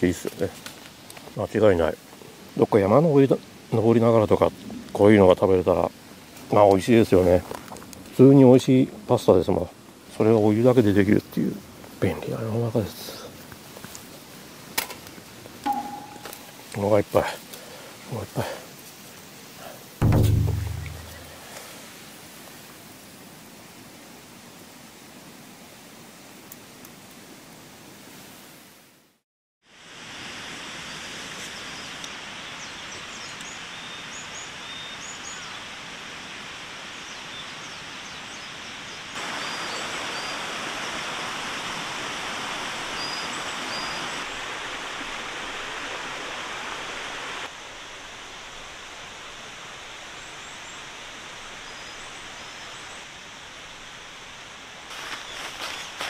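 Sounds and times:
stream rushing: 18.7 - 23.5, 39.1 - 56.0.

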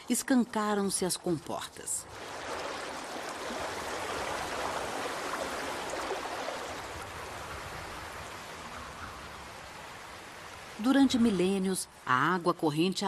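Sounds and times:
river water rushing: 2.0 - 8.6.

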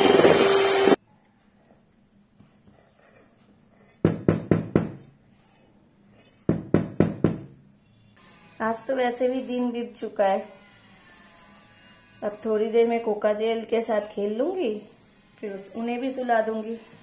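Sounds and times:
electric hand mixer whirring: 0.0 - 1.0.

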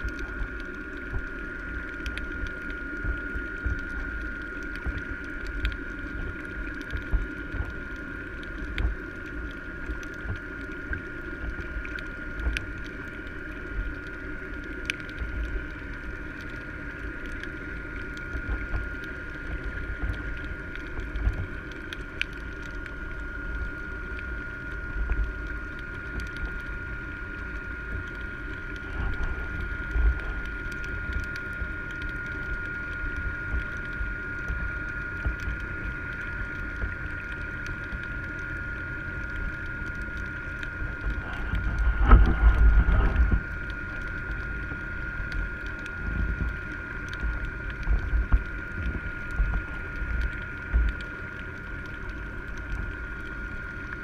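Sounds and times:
steady high whine: 0.0 - 54.0
underwater low rumble: 0.0 - 54.0.

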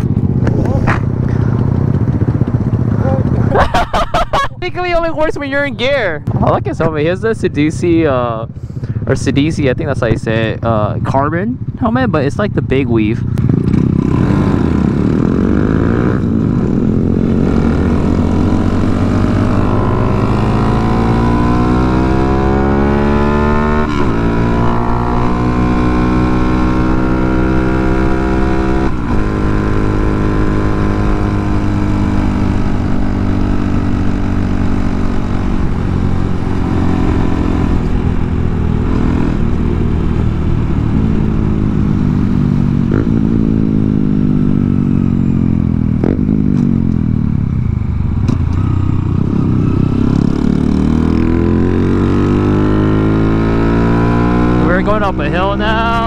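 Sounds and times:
small motorcycle engine accelerating: 48.2 - 56.0.

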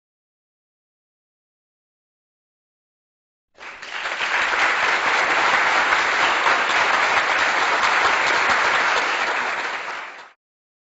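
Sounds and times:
audience applauding: 3.6 - 10.4.

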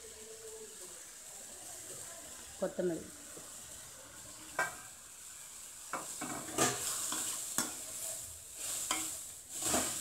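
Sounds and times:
soft sizzle: 0.0 - 10.0
metal spoon scraping pan: 6.0 - 10.0.

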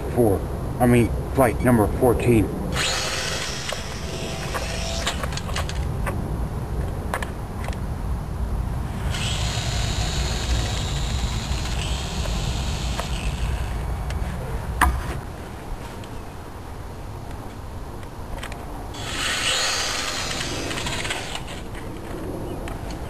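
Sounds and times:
model airplane motor buzz: 2.8 - 5.5, 9.1 - 13.8, 19.0 - 21.7.

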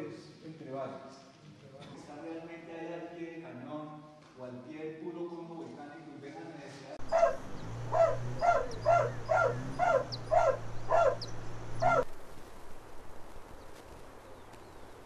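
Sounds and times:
dog barking: 7.0 - 12.0
steady low hum: 7.0 - 14.3.

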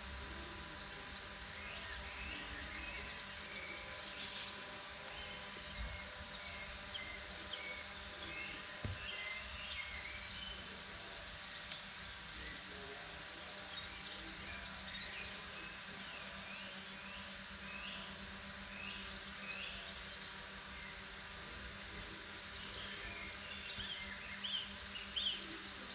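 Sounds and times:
songbirds chirping: 0.0 - 25.9
soft low thump: 8.8 - 9.1.

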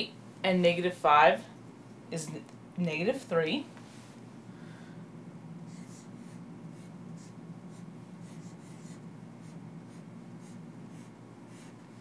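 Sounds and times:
steady low hum: 0.0 - 12.0
marker writing on whiteboard: 5.7 - 11.8.

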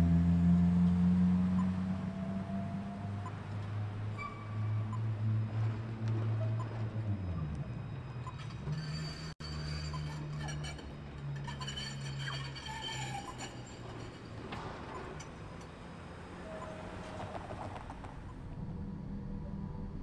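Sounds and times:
electric tram low hum: 0.0 - 20.0
wheel squeal on rails: 4.1 - 18.4.

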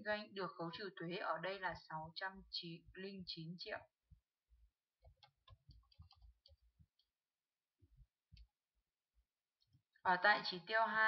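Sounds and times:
mouse and keyboard clicks: 5.0 - 7.1.

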